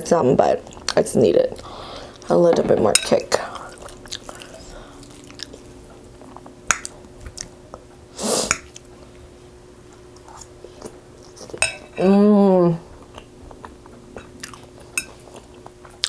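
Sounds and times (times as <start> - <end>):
person chewing: 3.5 - 7.8, 13.1 - 16.0.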